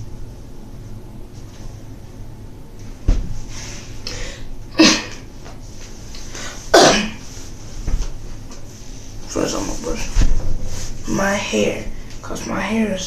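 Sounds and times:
thump: 3.1s - 3.4s
sharp bursts of breath: 3.6s - 4.5s.

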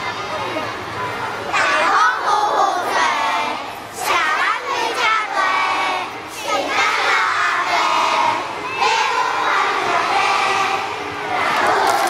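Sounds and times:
young children singing together: 1.5s - 12.0s.

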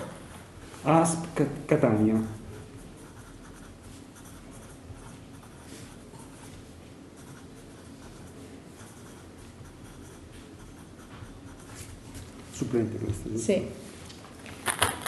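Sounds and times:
pen scratching on paper: 2.1s - 6.6s, 7.2s - 12.3s.

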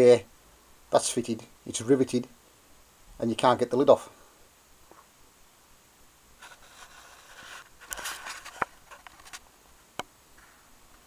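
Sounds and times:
rustle of handling: 6.4s - 9.6s.

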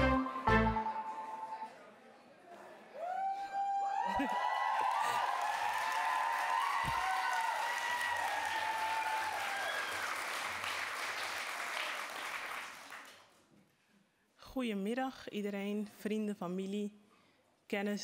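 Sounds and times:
high whoops: 3.0s - 10.2s
audience applauding: 3.8s - 13.3s.

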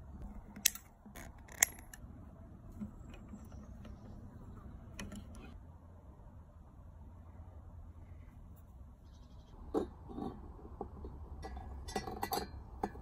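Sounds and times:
small metal parts clicking: 0.5s - 2.0s.

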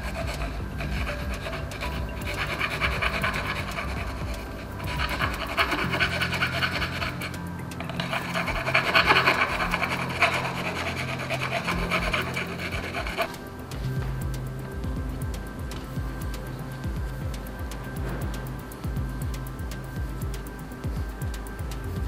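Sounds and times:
hand file rasping on tube: 0.0s - 13.4s.

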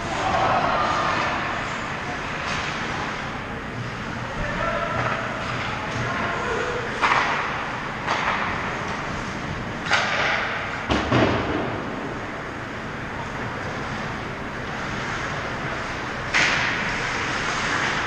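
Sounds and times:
indoor rink noise: 0.0s - 18.0s
hockey sticks clacking: 4.9s - 11.1s, 14.6s - 18.0s
skate blades scraping ice: 14.7s - 18.0s.

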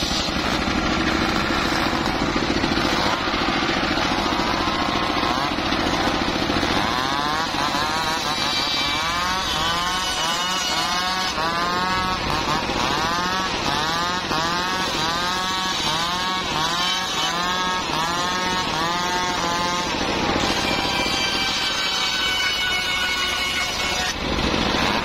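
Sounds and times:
circular saw blade whine: 0.0s - 25.0s
engine drone: 0.0s - 25.0s.

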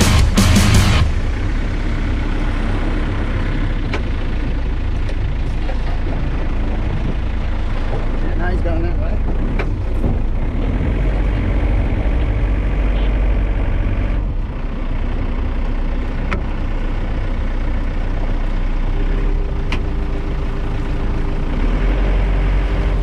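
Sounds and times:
high-pitched whine: 0.0s - 4.5s
outboard motor rumbling: 0.0s - 23.0s.

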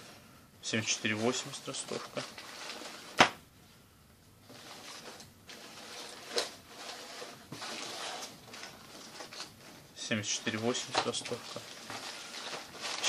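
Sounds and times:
rain overalls rustling: 4.5s - 13.0s.

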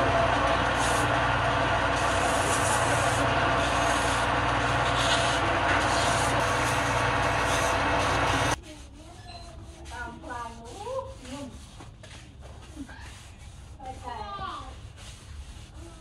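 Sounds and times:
lathe motor hum: 0.0s - 8.6s
sandpaper rasping on wood: 2.0s - 16.0s.

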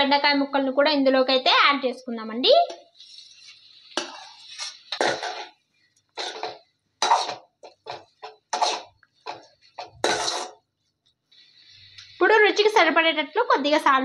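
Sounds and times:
spatula scraping metal pan: 3.1s - 5.6s.

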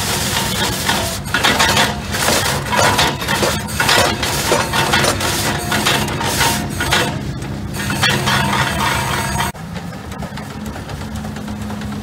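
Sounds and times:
machinery clanking and rattling: 0.0s - 12.0s
steam engine rumbling: 0.0s - 12.0s.

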